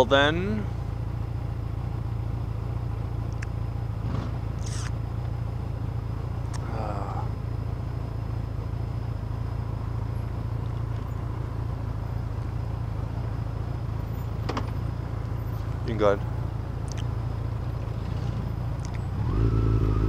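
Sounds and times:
motorcycle engine idling: 0.0 - 20.0.

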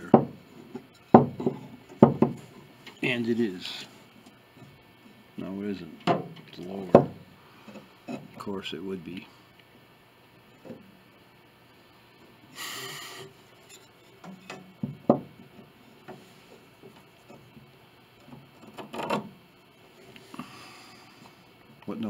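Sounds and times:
knocks on metal plate: 0.0 - 0.4, 1.1 - 2.4, 14.8 - 15.3.

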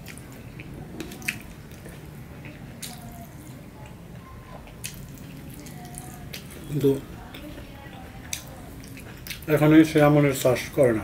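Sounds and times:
chewing: 0.0 - 9.7.

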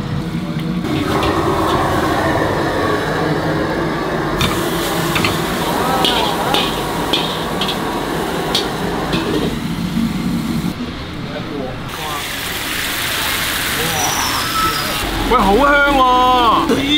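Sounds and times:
wok and spatula clanking: 0.8 - 2.4, 4.4 - 10.3
burner hiss: 0.8 - 10.8
food sizzling: 4.4 - 10.8, 11.8 - 16.7.

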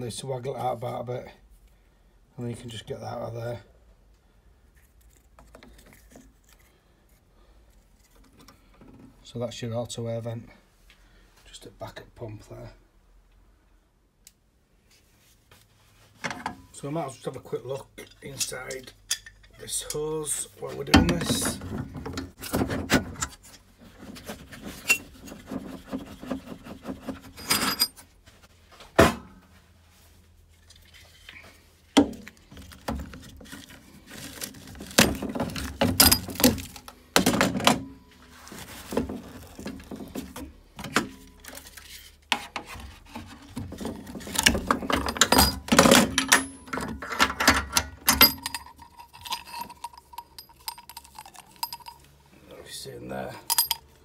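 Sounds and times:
tools clinking on metal fittings: 18.0 - 20.1, 27.4 - 28.0, 35.0 - 36.8, 44.3 - 52.2, 53.4 - 53.9.

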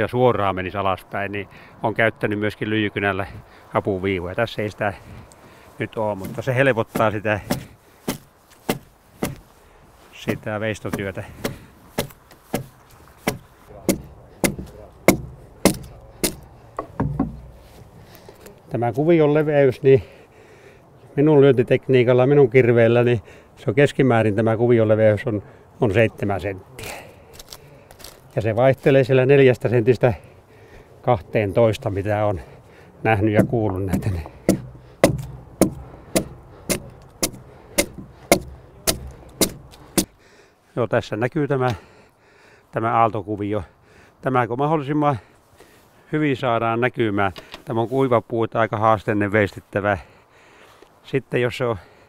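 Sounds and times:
axe chopping log: 6.2 - 9.5, 10.3 - 17.6, 33.4 - 40.1.

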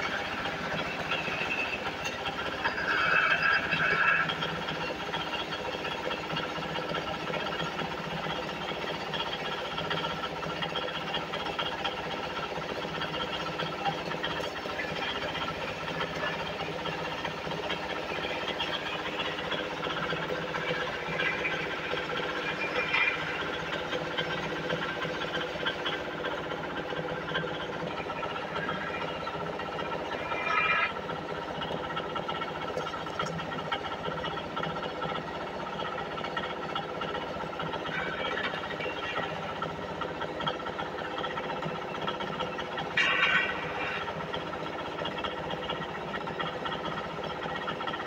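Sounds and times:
wood lathe running: 0.0 - 48.0
chisel scraping spinning wood: 29.7 - 32.0.

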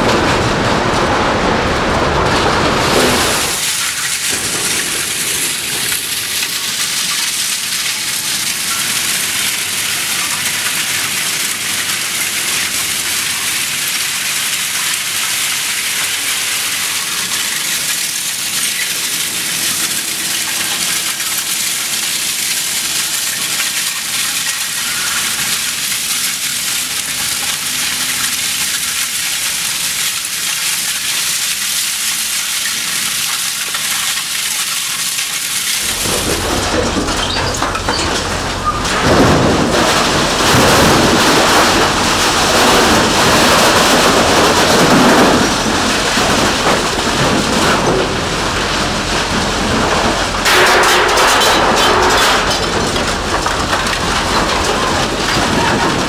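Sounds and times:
scrap steel pieces rattling onto pile: 2.1 - 31.1, 32.5 - 56.0.

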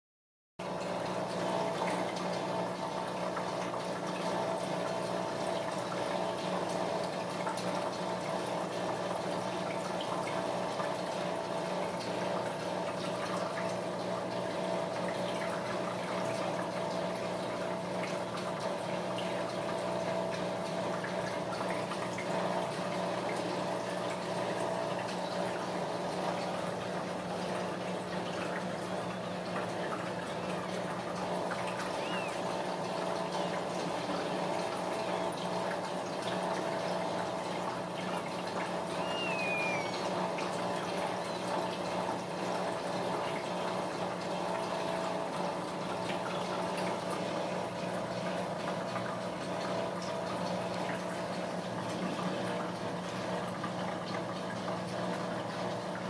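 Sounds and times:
low even hum: 29.5 - 35.5, 38.4 - 41.5.

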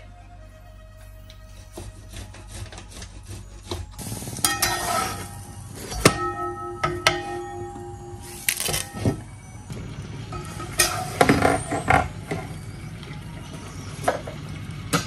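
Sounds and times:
metal kitchenware knocking: 6.0 - 8.0.

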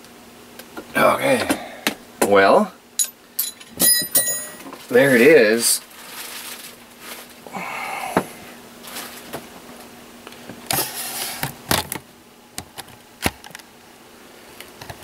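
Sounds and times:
faint steady hum: 0.0 - 15.0
short rustles: 5.8 - 7.4.

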